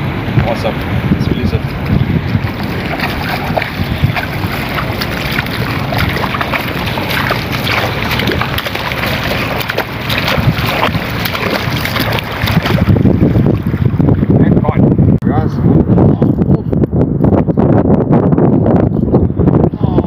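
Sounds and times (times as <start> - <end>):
wind buffeting microphone: 0.0 - 20.0
bare feet splashing in water: 1.7 - 14.0.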